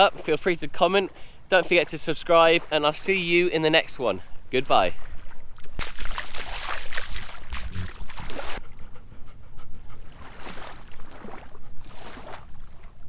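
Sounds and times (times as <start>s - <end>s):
footsteps splashing in water: 5.0s - 8.6s, 10.2s - 13.0s
dog panting: 8.2s - 10.6s.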